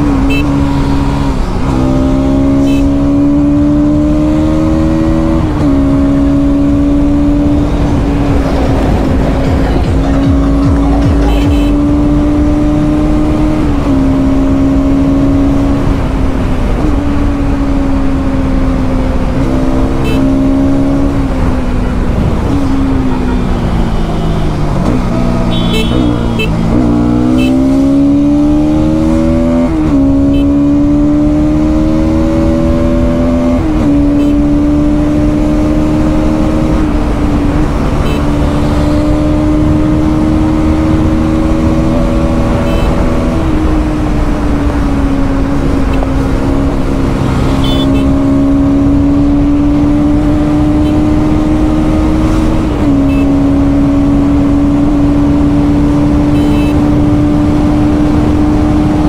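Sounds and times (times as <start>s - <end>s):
motorcycle engine accelerating: 0.0s - 59.0s
wind rush: 5.2s - 11.2s.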